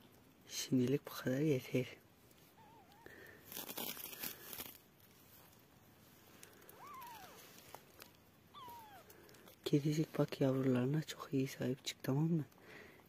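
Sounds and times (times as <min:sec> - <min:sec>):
plastic sacking rustling: 0:03.1 - 0:10.6
kitten mewing: 0:06.6 - 0:07.6, 0:08.5 - 0:09.4.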